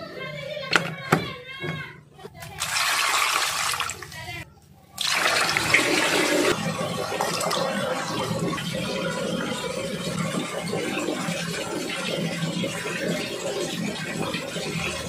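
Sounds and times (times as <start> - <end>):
running water splashing: 2.5 - 4.3.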